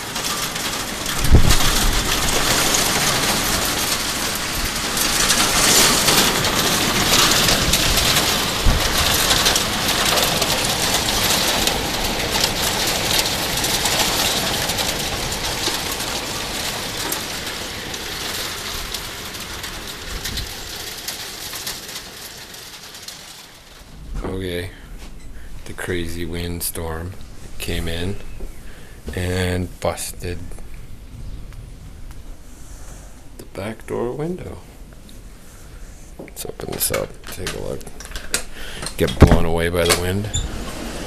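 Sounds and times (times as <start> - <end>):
wind buffeting microphone: 0.0 - 22.0, 30.1 - 32.5
heavy rain pouring: 0.0 - 41.0.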